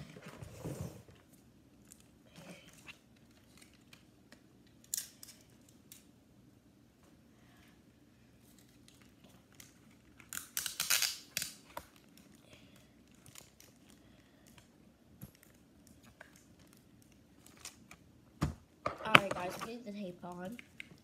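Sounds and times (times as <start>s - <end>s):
sticky tape rasping off roll: 10.2s - 11.6s.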